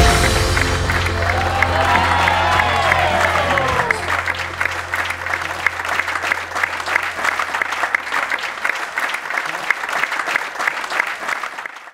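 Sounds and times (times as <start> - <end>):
crowd applauding: 0.0 - 11.9
low held tone: 2.8 - 8.2.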